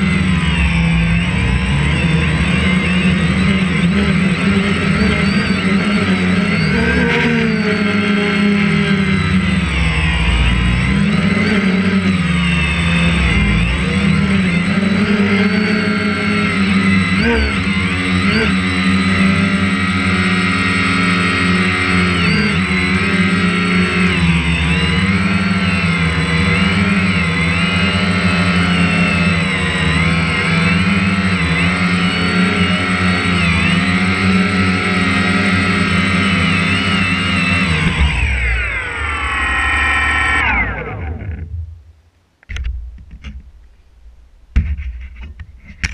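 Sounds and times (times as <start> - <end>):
drone propellers whining: 0.0 - 45.9.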